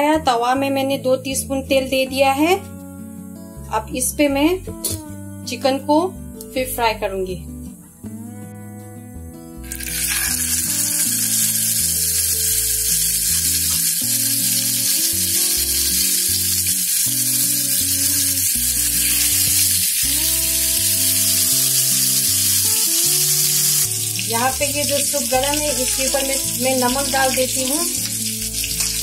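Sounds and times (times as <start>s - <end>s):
background music: 0.0s - 29.0s
chicken sizzling in hot oil: 9.6s - 29.0s.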